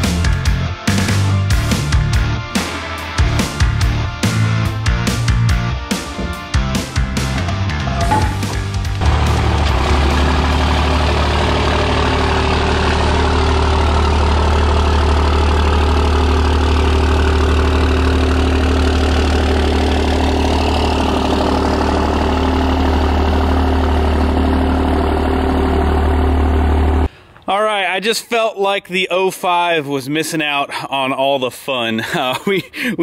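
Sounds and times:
truck engine idling: 2.6 - 27.2.

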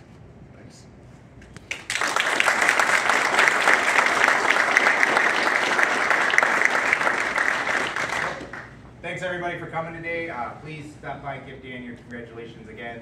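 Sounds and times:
audience applauding: 1.7 - 8.8.

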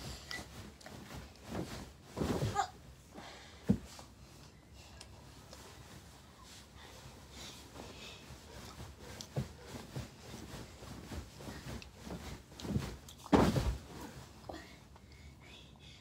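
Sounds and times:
soft knocks and bumps: 8.8 - 14.2
rough thud: 13.3 - 13.8.

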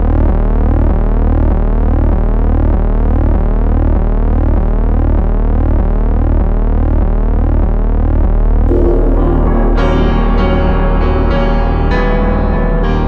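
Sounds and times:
synthesizer drone with sweeping tones: 8.7 - 13.0.

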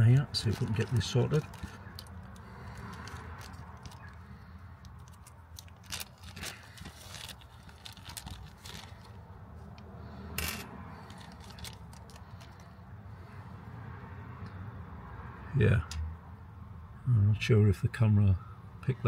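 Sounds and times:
plastic packet crinkling and tearing: 0.3 - 4.2, 4.8 - 9.2, 11.0 - 12.6.

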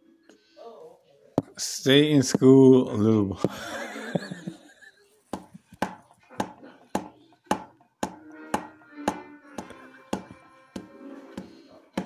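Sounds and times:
music with steady percussive beat: 7.0 - 11.0
pitched musical notes: 7.7 - 12.0.

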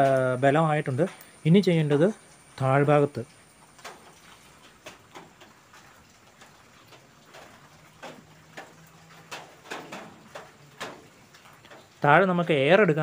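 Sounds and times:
faint light ticks and taps: 3.7 - 12.0.

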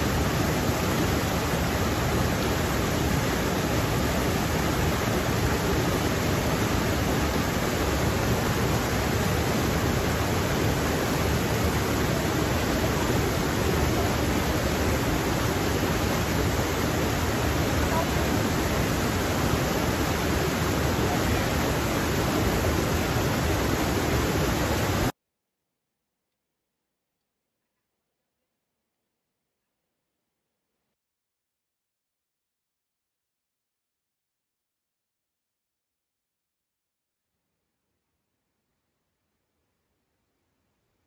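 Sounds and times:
stream rushing over boulders: 0.0 - 25.1.

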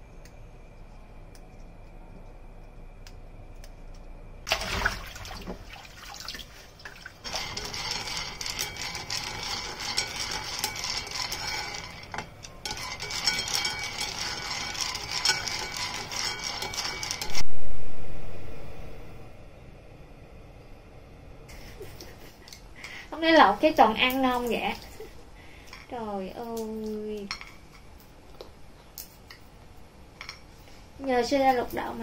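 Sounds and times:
peanuts rattling in frying pan: 7.2 - 17.4.

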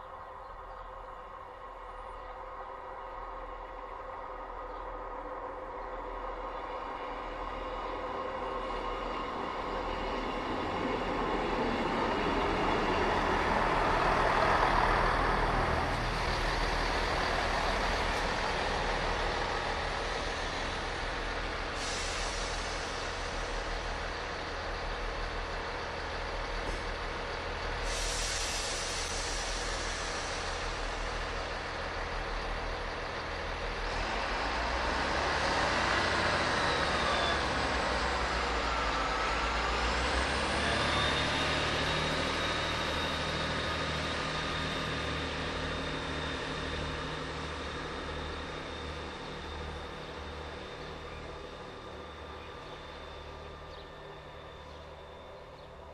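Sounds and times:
diesel engines idling: 0.0 - 55.9
diesel train arriving: 0.0 - 55.9
short air hisses: 21.7 - 23.6, 27.8 - 31.3.

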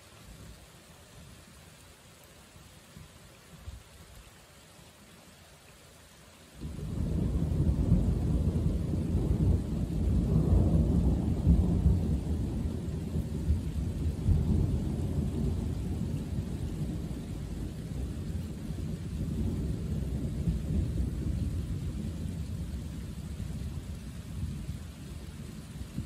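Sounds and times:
thunder rumbling: 6.6 - 26.0.

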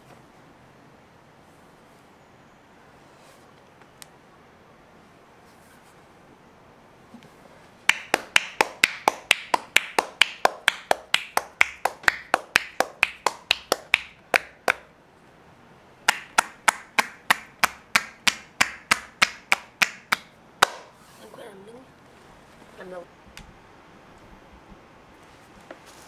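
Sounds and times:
hands slapping bare skin: 7.9 - 14.9, 16.1 - 20.9.

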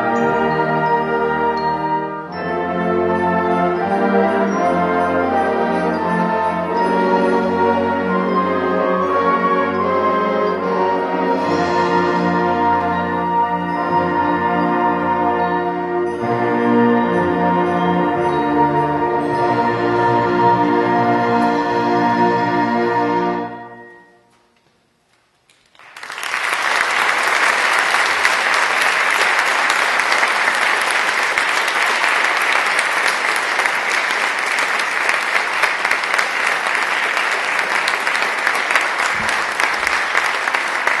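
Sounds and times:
audience applause: 25.5 - 41.0.

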